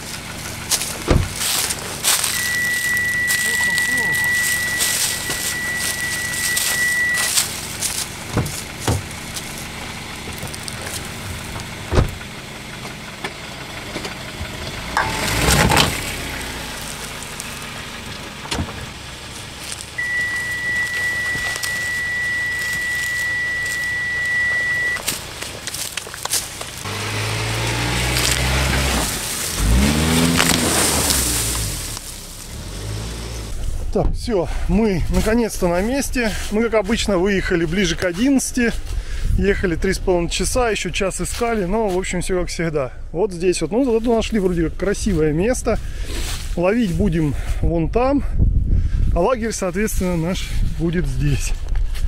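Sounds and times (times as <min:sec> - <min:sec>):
car driving over rough ground: 0:00.0 - 0:42.8
high electronic tone: 0:02.2 - 0:07.4, 0:15.0 - 0:16.0, 0:20.0 - 0:25.1.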